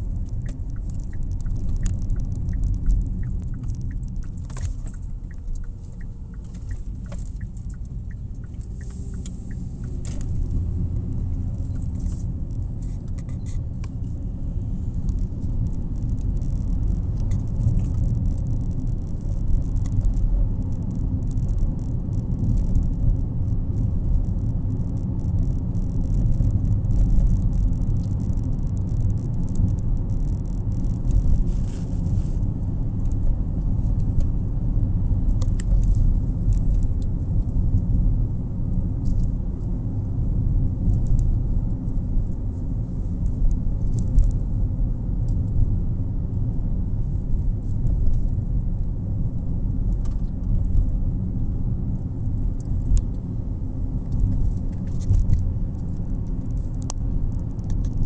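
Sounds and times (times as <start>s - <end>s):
light rattles and ticks: 0.0s - 32.2s
car cabin road rumble: 0.0s - 58.0s.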